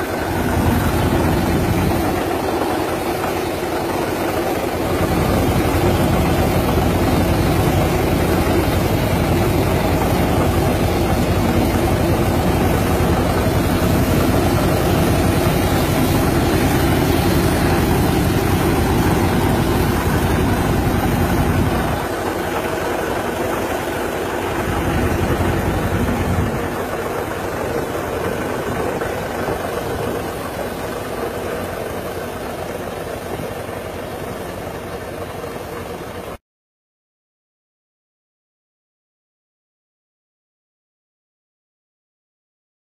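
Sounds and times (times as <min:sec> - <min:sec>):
tractor engine running: 0:00.0 - 0:36.4
sprayer mist hissing: 0:04.7 - 0:26.0.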